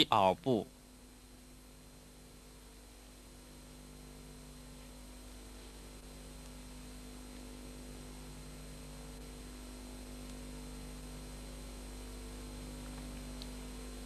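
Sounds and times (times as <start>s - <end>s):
electrical hum: 0.0s - 14.0s
steady hiss: 0.0s - 14.0s.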